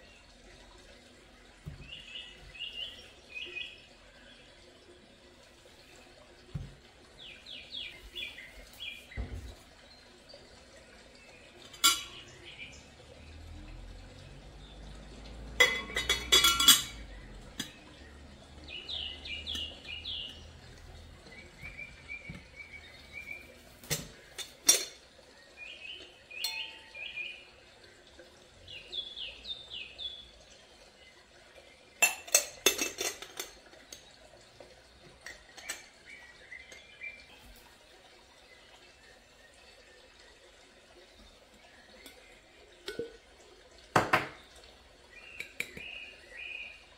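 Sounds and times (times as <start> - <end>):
bird chirping: 1.7 - 4.4, 18.0 - 20.6, 21.3 - 23.6, 25.4 - 27.5, 45.1 - 46.9
kitchenware clinking: 11.6 - 12.3, 15.6 - 17.8, 23.7 - 25.1, 32.0 - 34.1, 35.2 - 36.9, 43.9 - 44.4.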